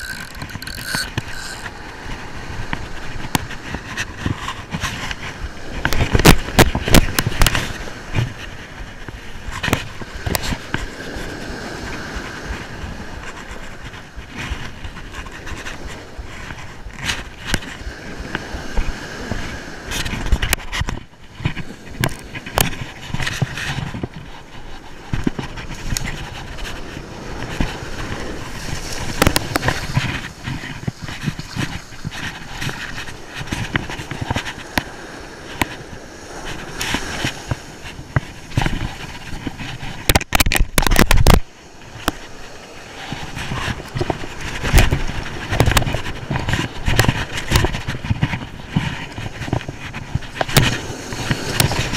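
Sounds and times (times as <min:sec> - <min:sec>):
fabric rubbing on microphone: 0:00.0 - 0:11.3, 0:22.3 - 0:34.7, 0:35.5 - 0:51.9
waves washing up beach: 0:00.0 - 0:51.9
wind buffeting microphone: 0:00.0 - 0:51.9.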